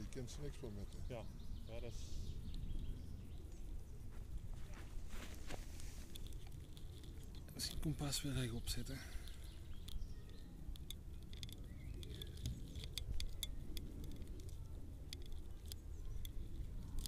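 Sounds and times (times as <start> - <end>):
sharp little clicks: 6.1 - 17.0.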